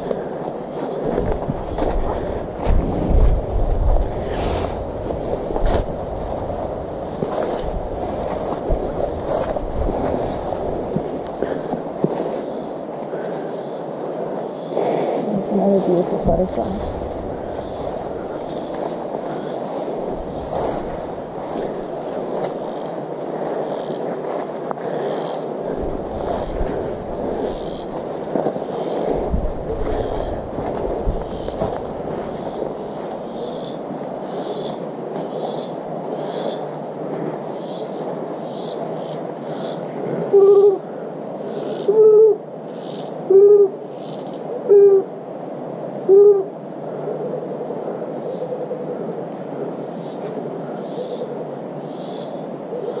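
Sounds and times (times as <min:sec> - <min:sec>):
rustling: 0:00.0 - 0:33.3
footsteps on forest trail: 0:00.0 - 0:33.7
steady background hiss: 0:00.0 - 0:53.0
low rumble on microphone: 0:01.1 - 0:12.4, 0:14.8 - 0:23.6, 0:25.6 - 0:33.4
low hooting call: 0:40.2 - 0:41.0, 0:41.7 - 0:42.5, 0:43.2 - 0:45.2, 0:46.0 - 0:49.9.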